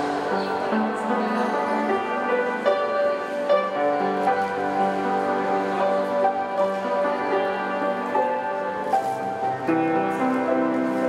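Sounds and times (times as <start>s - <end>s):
slow gentle piano piece: 0.0s - 11.0s.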